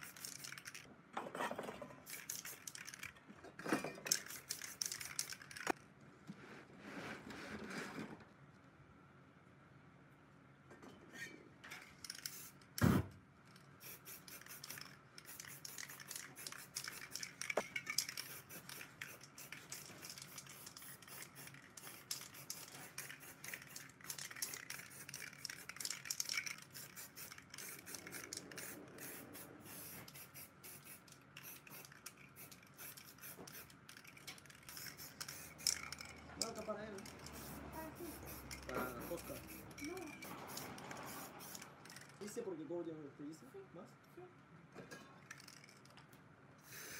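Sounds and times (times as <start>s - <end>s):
spray paint cans hissing: 0.0s - 0.9s, 2.0s - 3.1s, 4.1s - 5.8s, 11.8s - 13.0s, 13.6s - 42.2s, 45.3s - 45.9s, 46.6s - 46.9s.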